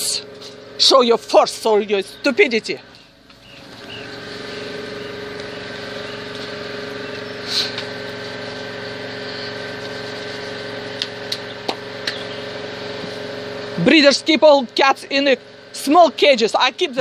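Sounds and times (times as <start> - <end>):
motor humming: 0.0 - 17.0.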